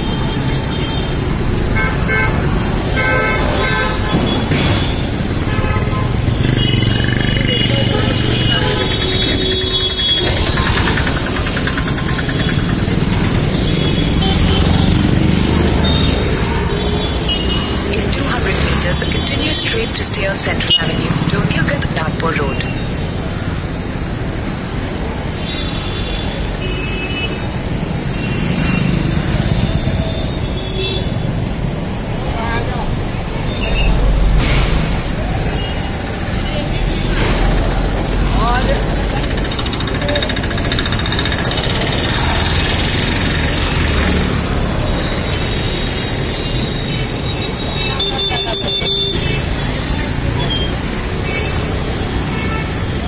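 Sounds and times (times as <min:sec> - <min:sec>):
scooter engines running: 0:00.0 - 0:26.7, 0:27.4 - 0:33.6, 0:35.1 - 0:53.0
traffic rumble: 0:00.0 - 0:53.0
high-pitched tones: 0:17.9 - 0:22.8.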